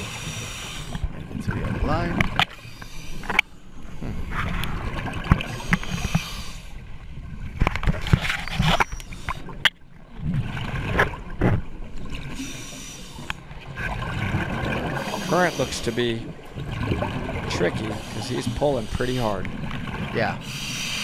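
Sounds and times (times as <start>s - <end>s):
diver breathing through regulator: 0.0s - 1.1s, 2.5s - 4.4s, 5.4s - 6.8s, 12.3s - 13.5s, 14.8s - 16.2s, 17.8s - 19.5s, 20.4s - 21.0s
gurgling exhaust bubbles: 13.7s - 20.5s.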